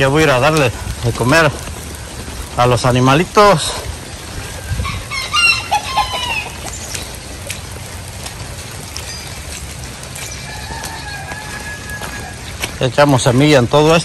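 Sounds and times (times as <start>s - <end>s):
rooster crowing: 4.8s - 6.6s, 10.3s - 12.7s.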